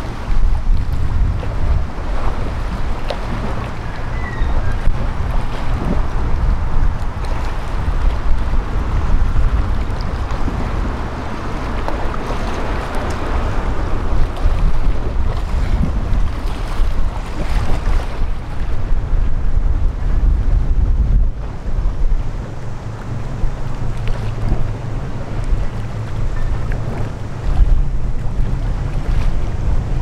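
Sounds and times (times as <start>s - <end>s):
water washing: 0.0s - 18.8s
low rumble: 0.0s - 30.0s
wind buffeting microphone: 0.0s - 30.0s.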